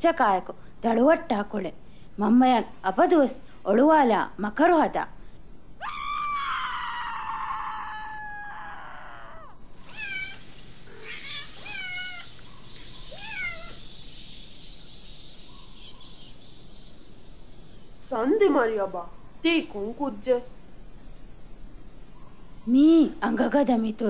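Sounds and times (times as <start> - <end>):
faint steady hiss: 0.0 - 24.0
cat meowing: 5.8 - 12.3, 13.1 - 13.8
cat yowling: 5.8 - 12.4, 13.1 - 13.8.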